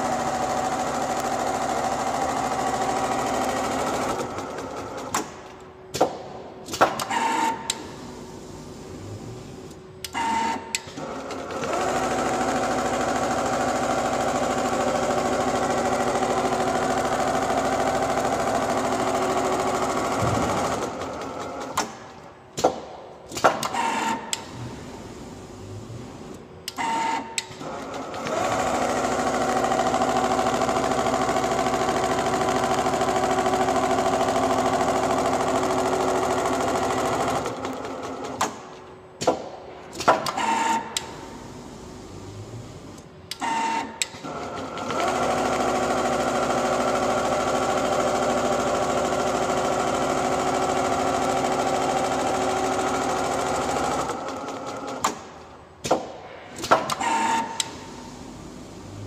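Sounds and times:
sewing machine stitching: 10.2s - 22.0s, 26.8s - 38.5s, 43.4s - 55.2s.

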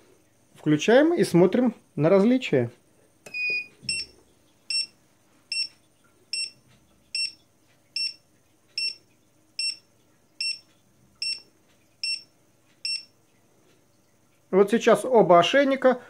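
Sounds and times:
short high beeps: 5.5s - 5.7s, 7.2s - 7.4s, 8.0s - 8.2s, 8.8s - 9.0s, 9.6s - 9.8s, 10.4s - 10.6s, 11.2s - 11.4s, 12.0s - 13.1s.

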